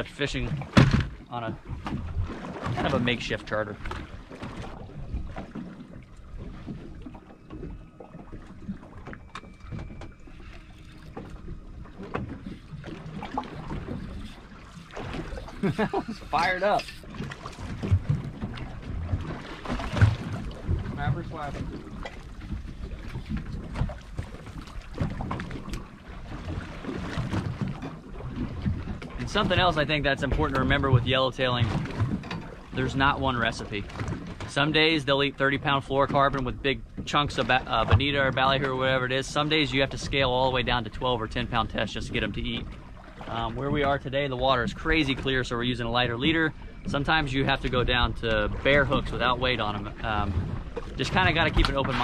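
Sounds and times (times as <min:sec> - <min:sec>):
water sloshing against boat hull: 0:00.0 - 0:52.0.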